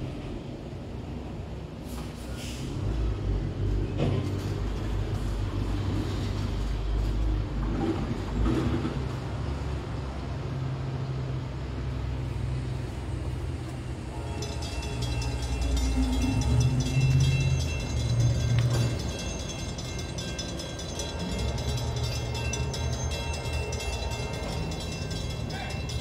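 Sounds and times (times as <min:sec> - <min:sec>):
train clicks and clanks: 0:00.0 - 0:10.5, 0:12.8 - 0:26.0
freight train wheels rumbling: 0:00.0 - 0:26.0
high-pitched metallic squeal: 0:14.0 - 0:26.0.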